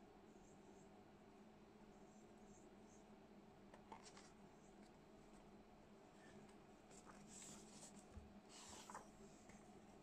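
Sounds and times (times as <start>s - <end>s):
book pages turning: 3.9s - 4.4s, 6.9s - 9.6s.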